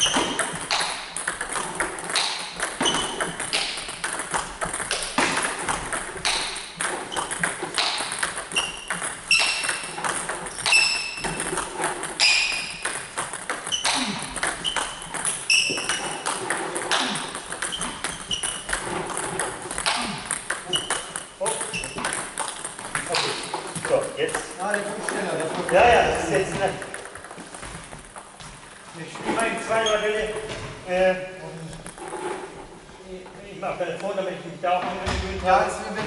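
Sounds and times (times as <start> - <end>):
table tennis bat hits: 0.0 - 28.3
ping pong balls bouncing: 0.0 - 28.8, 31.2 - 32.6.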